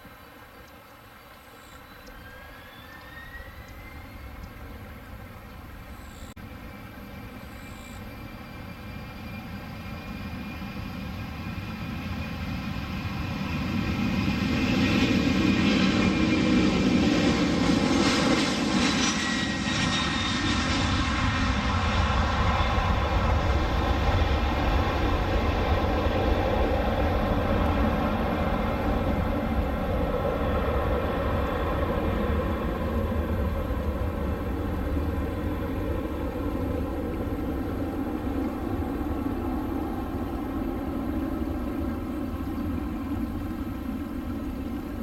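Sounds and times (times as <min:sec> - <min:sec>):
jet airliner taking off: 0:02.0 - 0:45.0.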